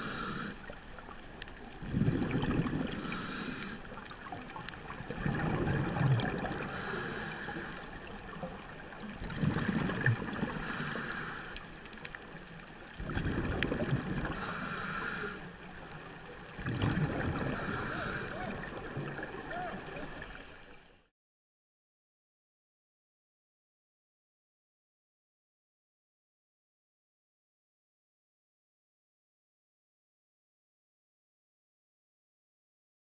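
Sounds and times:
regulator inhale hiss: 0.0s - 0.8s, 2.9s - 4.0s, 6.6s - 8.0s, 9.5s - 11.7s, 14.3s - 15.5s, 17.6s - 18.4s
exhaled bubbles rumbling: 0.6s - 11.0s, 11.7s - 14.6s, 15.6s - 20.2s.

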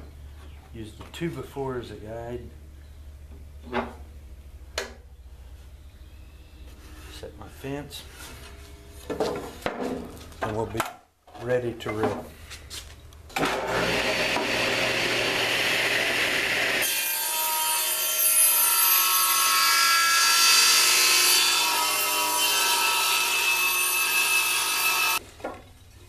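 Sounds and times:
table saw cutting wood: 13.4s - 25.2s.

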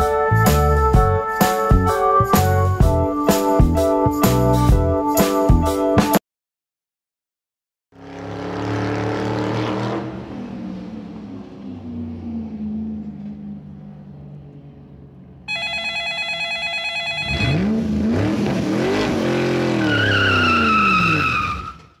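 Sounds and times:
car engine revving: 8.0s - 15.4s, 17.2s - 21.3s
engine hum: 8.0s - 15.6s
telephone ringing: 15.5s - 17.6s
tyre squeal: 19.8s - 22.0s.

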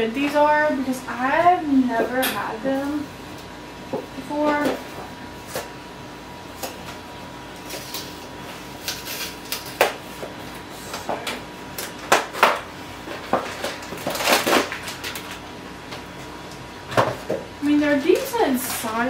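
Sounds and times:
cardboard box crackling and tearing: 13.6s - 15.4s.

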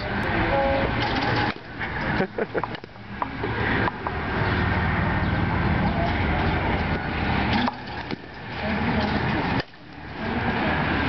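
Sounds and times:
rumbling outdoor noise: 0.0s - 11.0s
bat striking balls: 2.5s - 4.2s, 6.9s - 10.0s.

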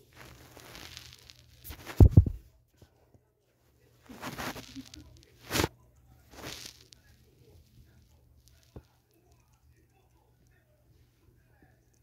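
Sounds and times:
soft fabric rustling: 0.0s - 2.5s, 3.9s - 5.7s, 6.3s - 7.0s.

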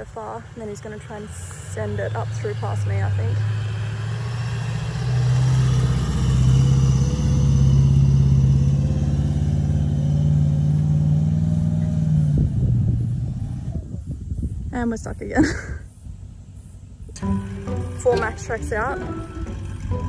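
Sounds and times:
engine working hard under load: 0.0s - 13.8s, 17.1s - 20.0s.

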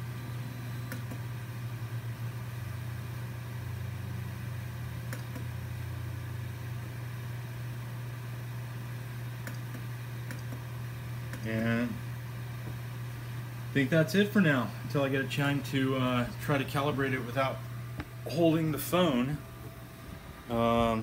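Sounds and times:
cooling fans humming: 0.0s - 21.0s
faint clicks: 9.4s - 10.6s.

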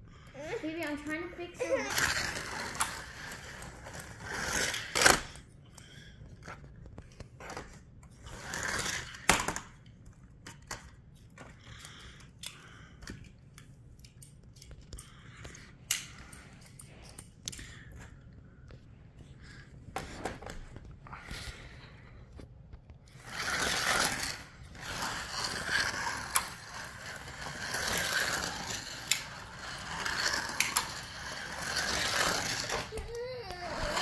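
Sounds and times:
plastic toy cars clicking: 1.8s - 5.4s, 23.2s - 34.0s.

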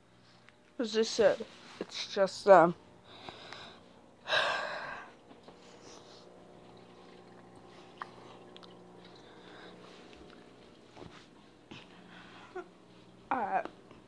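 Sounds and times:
faint steady hum: 0.0s - 14.0s
person breathing loudly: 3.1s - 5.1s.

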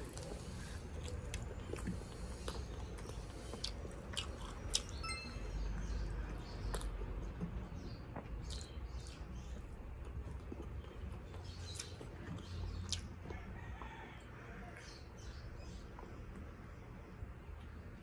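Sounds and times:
close chewing: 0.0s - 5.0s, 6.3s - 14.8s.

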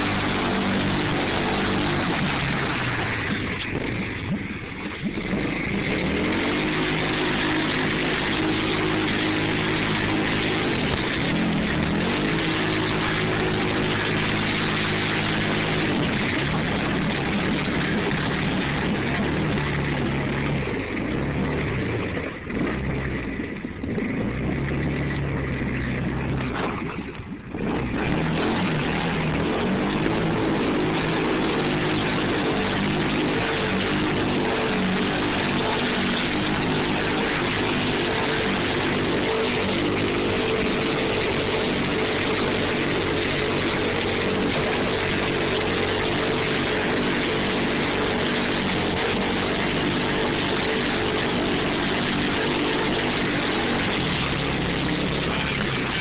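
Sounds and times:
atv engine revving in mud: 0.0s - 56.0s.

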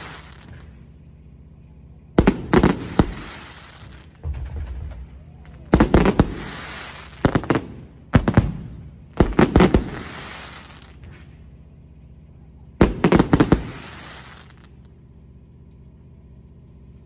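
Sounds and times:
fireworks bangs with crackling: 0.0s - 15.1s
dull low thud: 3.9s - 9.5s.

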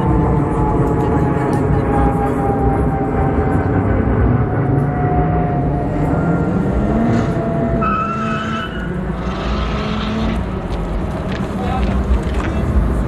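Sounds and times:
high engine whine: 0.0s - 13.0s
cars accelerating hard: 3.3s - 13.0s.

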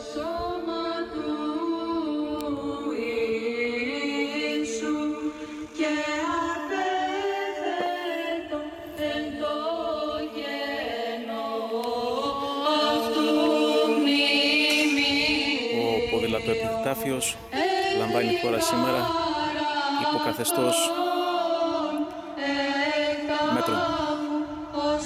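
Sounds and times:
voices chanting: 5.8s - 25.0s.

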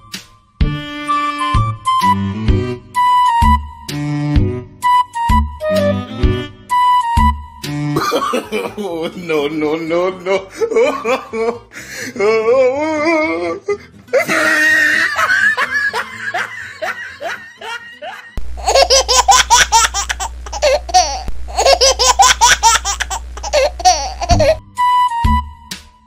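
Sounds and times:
woman laughing: 10.5s - 11.6s, 14.2s - 24.6s
steady low hum: 18.4s - 24.6s.

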